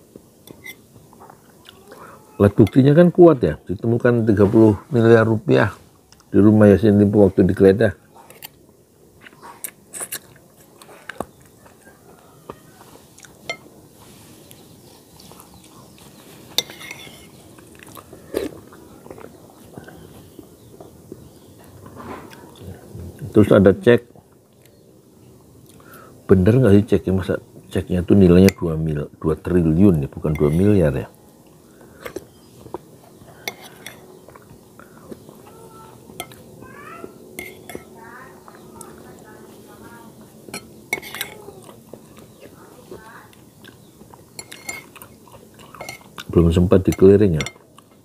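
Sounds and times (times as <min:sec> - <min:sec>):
person chewing: 0:00.5 - 0:02.0, 0:08.2 - 0:08.6, 0:09.2 - 0:13.7, 0:14.4 - 0:20.5, 0:25.6 - 0:26.0, 0:36.1 - 0:36.5, 0:40.5 - 0:46.4, 0:47.5 - 0:48.0
spoon clinking on ceramic bowl: 0:16.6 - 0:17.3, 0:36.2 - 0:36.4, 0:37.4 - 0:37.9, 0:40.5 - 0:41.4, 0:44.4 - 0:45.0, 0:45.7 - 0:46.1, 0:46.9 - 0:47.6.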